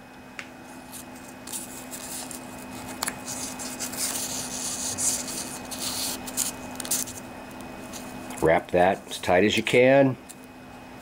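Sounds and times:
faint steady hum: 0.0s - 11.0s
sandpaper rustling and rubbing: 0.9s - 7.2s.

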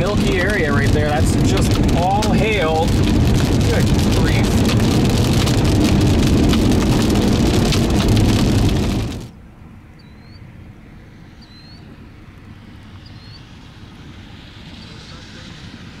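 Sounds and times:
rain and hail pelting a vehicle: 0.0s - 9.4s.

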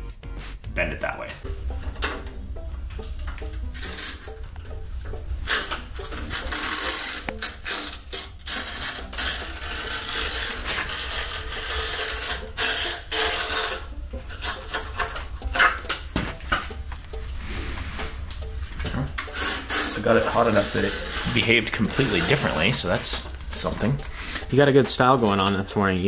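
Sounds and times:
chisel scraping metal sign: 5.5s - 16.0s, 19.2s - 24.5s.

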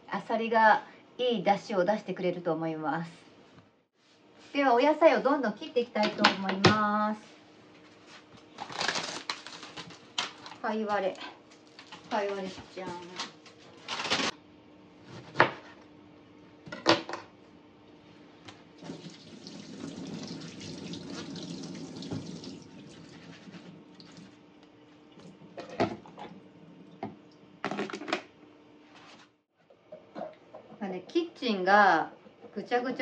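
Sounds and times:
tap running into a sink: 18.8s - 22.7s.

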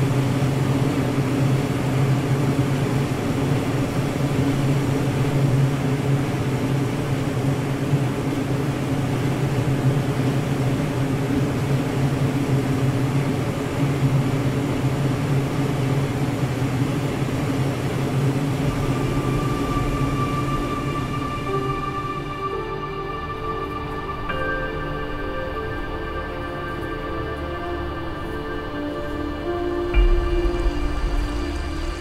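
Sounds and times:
low droning hum: 0.0s - 32.0s
rushing hiss: 0.1s - 32.0s
sustained music tones: 18.6s - 32.0s.

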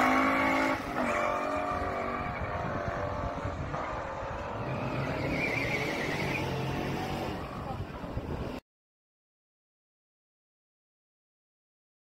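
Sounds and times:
car engines revving accelerating: 0.0s - 8.6s.

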